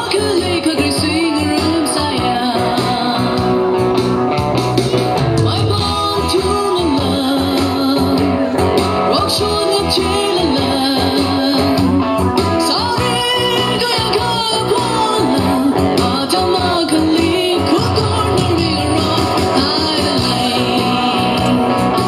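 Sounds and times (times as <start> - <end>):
person singing: 0.0 - 3.9, 5.2 - 22.0
guitar accompaniment: 0.0 - 22.0.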